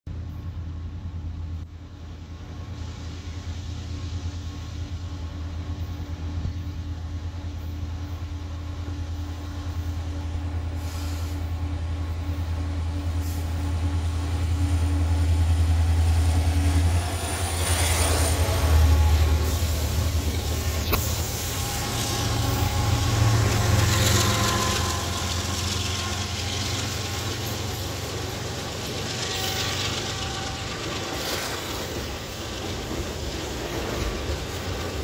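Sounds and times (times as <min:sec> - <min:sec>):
diesel locomotives engine drone: 0:00.1 - 0:35.0
locomotives rushing past: 0:12.8 - 0:35.0.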